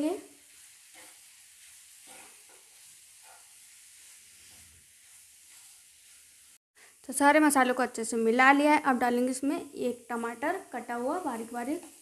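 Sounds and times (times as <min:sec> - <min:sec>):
metal spoon scraping a pan: 0:00.0 - 0:06.6
vegetables sizzling in a pan: 0:00.0 - 0:12.0.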